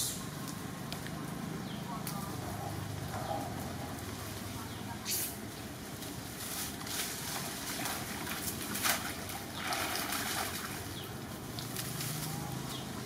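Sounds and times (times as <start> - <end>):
macaques splashing through a puddle: 7.2 - 13.0.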